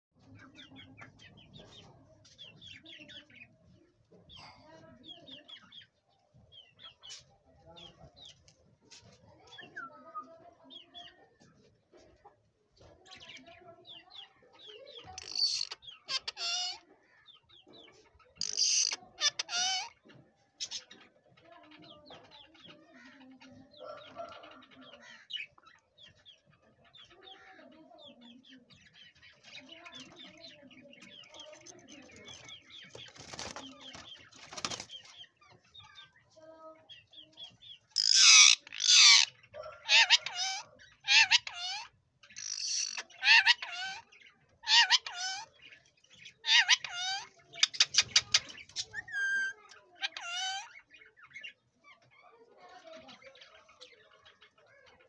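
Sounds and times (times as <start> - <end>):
parakeet chattering calls: 15.0 - 16.8, 18.4 - 20.0, 20.6 - 21.0, 37.6 - 52.3
parakeet screeching: 15.2 - 16.8, 18.4 - 20.0, 38.0 - 44.0, 44.6 - 45.5, 46.4 - 50.7.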